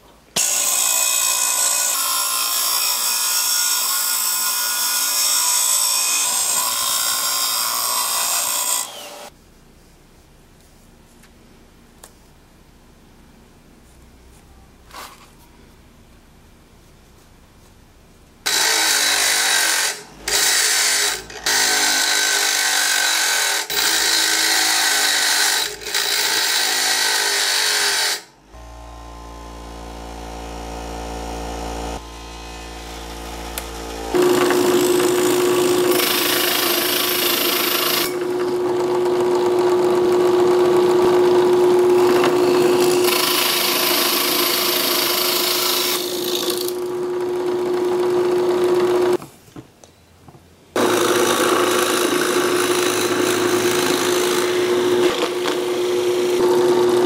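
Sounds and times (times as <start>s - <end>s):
bench grinder grinding steel: 0.4s - 9.3s, 18.5s - 49.2s, 50.8s - 57.0s
drill press boring wood: 8.4s - 9.3s, 33.0s - 49.2s, 50.8s - 57.0s.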